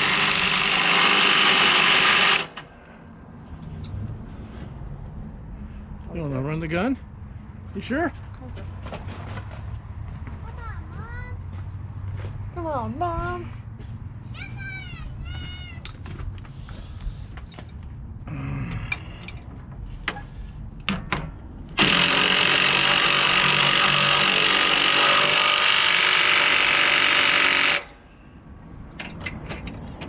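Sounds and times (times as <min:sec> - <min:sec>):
impact wrench hammering: 0:20.0 - 0:28.0.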